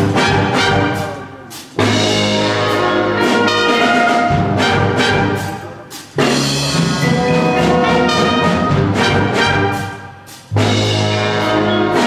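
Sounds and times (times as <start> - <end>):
brass chords: 0.0 - 12.0
percussion strikes: 4.1 - 12.0.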